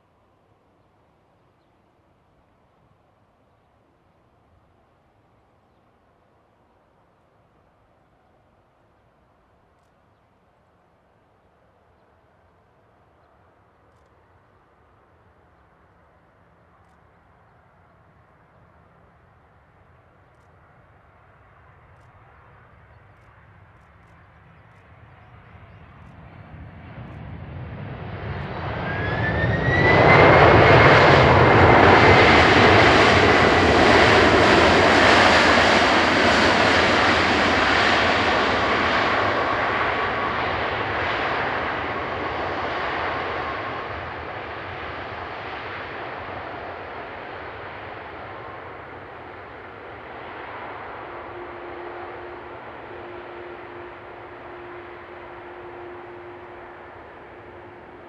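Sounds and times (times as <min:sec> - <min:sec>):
jet engines roaring: 0:25.6 - 0:58.0.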